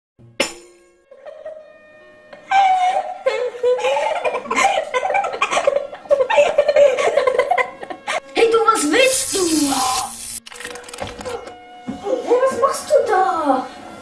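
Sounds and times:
boys laughing: 0:01.1 - 0:01.7, 0:02.3 - 0:08.2.

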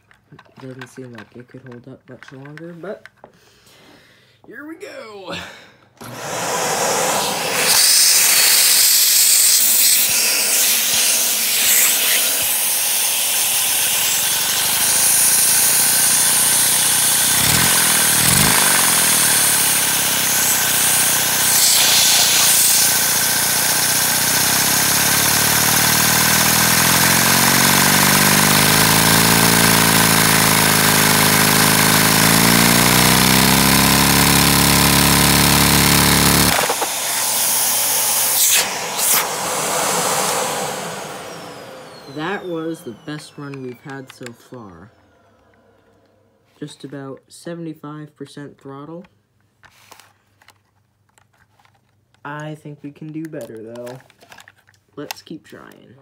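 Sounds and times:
engine rushing air and clatter: 0:06.0 - 0:44.3.

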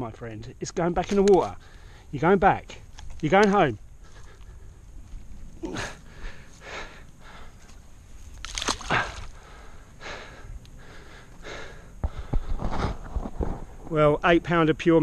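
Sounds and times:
man breathing heavily and snorting: 0:01.6 - 0:02.2, 0:04.0 - 0:04.8, 0:05.6 - 0:07.8, 0:08.9 - 0:13.2.

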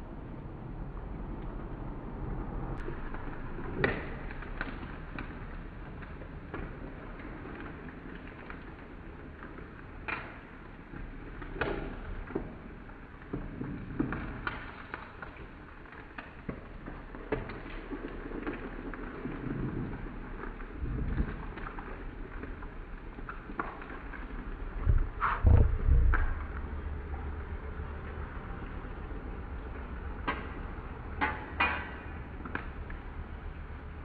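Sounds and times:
batter sizzling in hot oil: 0:02.8 - 0:24.8.

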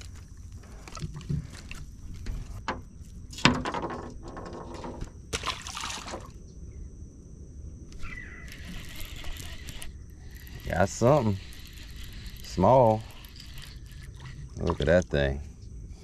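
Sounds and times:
water sloshing against boat: 0:00.0 - 0:06.4, 0:08.0 - 0:15.4
water splash: 0:05.3 - 0:06.3.

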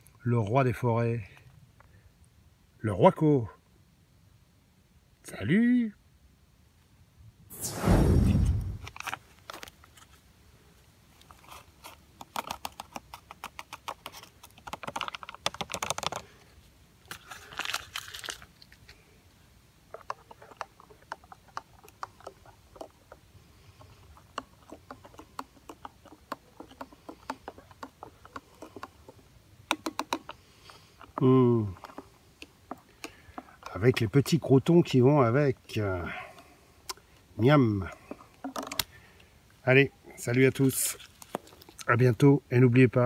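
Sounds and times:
sachet crinkling: 0:17.0 - 0:19.0.

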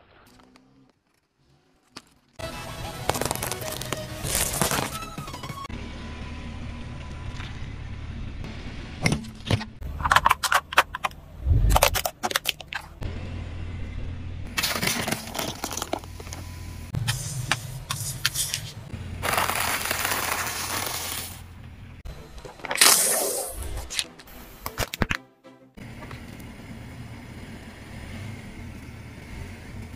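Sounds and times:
tyre crushing objects: 0:00.3 - 0:05.3, 0:14.6 - 0:16.4, 0:17.0 - 0:21.4
low car rumble: 0:04.9 - 0:22.4, 0:25.8 - 0:29.9.

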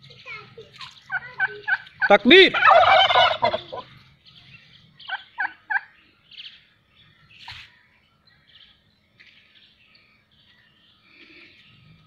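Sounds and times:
turkeys calling: 0:00.6 - 0:06.5.

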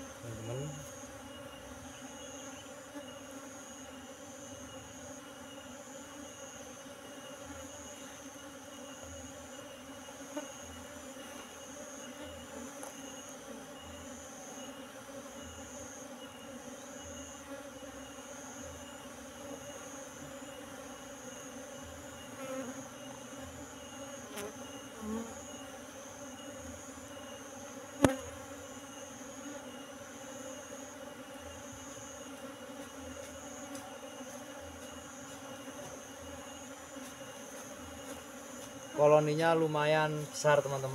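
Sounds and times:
bees buzzing: 0:00.0 - 0:40.9.

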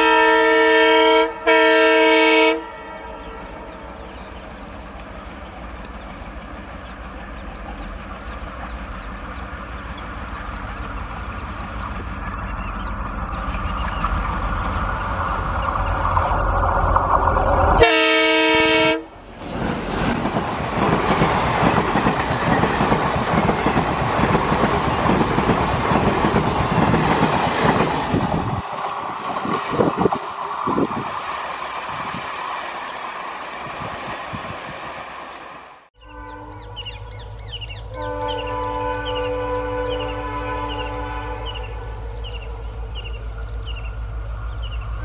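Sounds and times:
train horn blast: 0:00.0 - 0:03.9, 0:17.8 - 0:19.2, 0:36.0 - 0:37.2, 0:37.9 - 0:43.2
diesel locomotive engine: 0:00.0 - 0:45.0
train wheels clattering past: 0:04.0 - 0:30.9.

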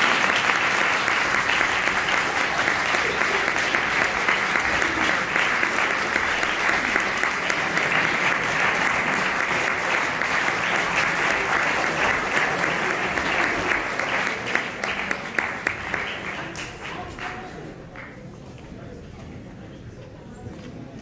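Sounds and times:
audience applauding: 0:00.0 - 0:18.2.

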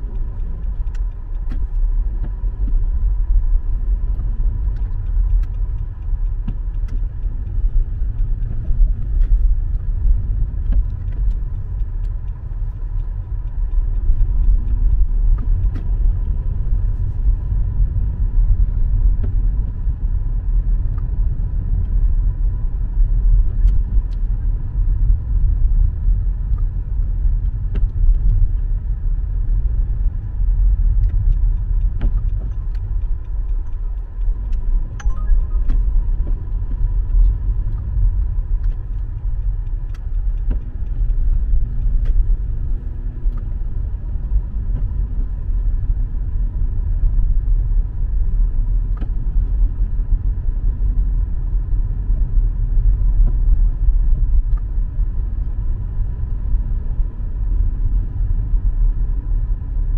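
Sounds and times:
car road and engine rumble: 0:00.0 - 0:59.9
thin steady high tone: 0:35.0 - 0:35.7.

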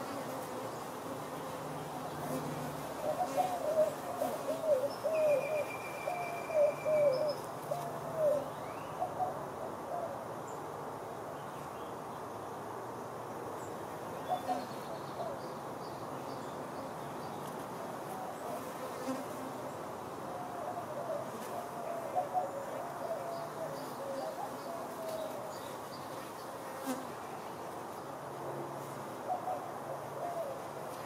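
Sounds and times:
honeybees buzzing: 0:00.0 - 0:05.0.

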